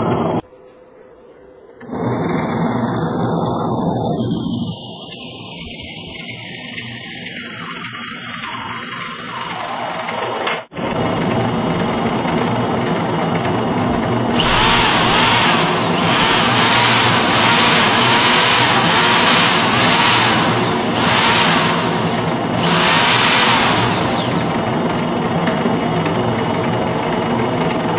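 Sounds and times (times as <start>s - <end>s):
low motor hum: 10.8s - 27.9s
cordless drill whining: 14.3s - 24.9s.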